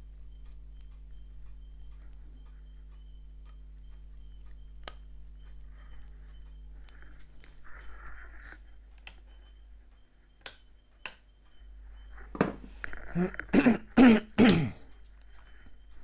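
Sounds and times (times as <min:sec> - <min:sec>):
man coughing and clearing throat: 0:13.1 - 0:14.9.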